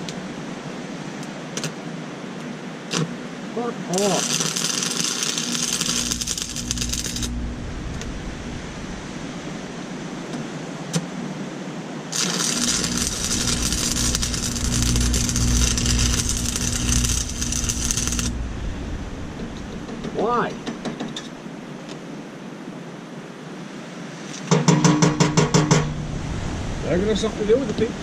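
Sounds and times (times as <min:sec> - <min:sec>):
welding arc crackling: 0:03.9 - 0:09.6, 0:12.1 - 0:20.3
low welder hum: 0:04.0 - 0:10.2, 0:12.1 - 0:21.4.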